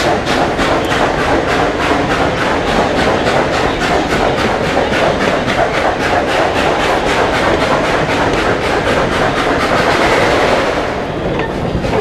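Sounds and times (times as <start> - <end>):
steam train rumbling: 0.0 - 12.0.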